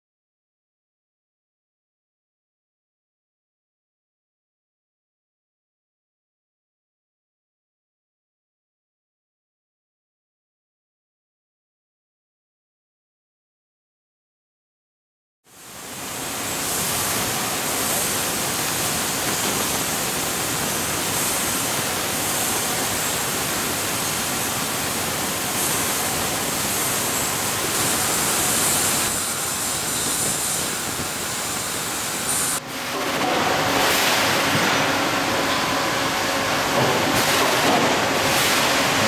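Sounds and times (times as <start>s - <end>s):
machine shop din: 15.5s - 39.0s.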